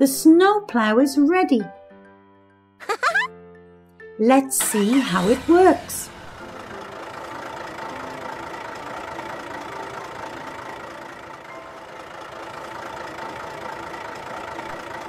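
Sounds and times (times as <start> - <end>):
snowblower engine running: 4.6 - 15.0.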